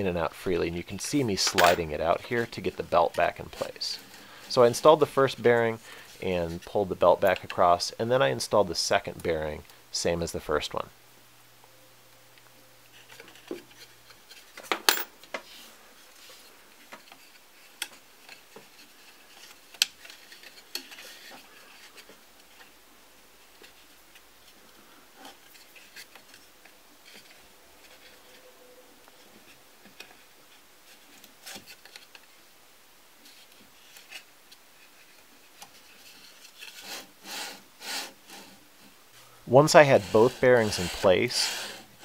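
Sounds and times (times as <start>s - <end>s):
light rubbing of belt: 23.4s - 32.3s, 33.2s - 42.0s.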